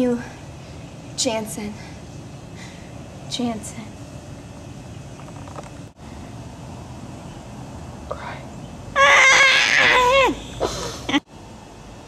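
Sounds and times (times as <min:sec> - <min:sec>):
short breaths: 0:01.8 - 0:03.0
loud high wavering cry: 0:09.0 - 0:10.7.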